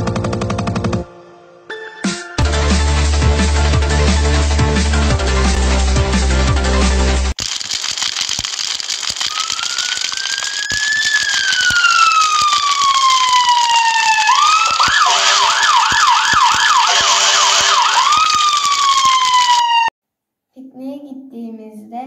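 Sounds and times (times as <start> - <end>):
scattered clicks: 7.4 - 19.9
emergency vehicle siren: 9.3 - 19.9.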